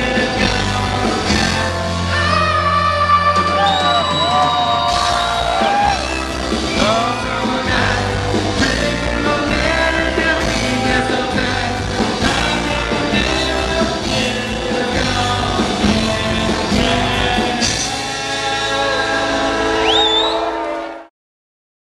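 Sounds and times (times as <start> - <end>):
lead singer singing: 0.0 - 20.8
live rock band playing: 0.0 - 20.8
short rising whistle: 3.4 - 7.4, 19.6 - 20.8.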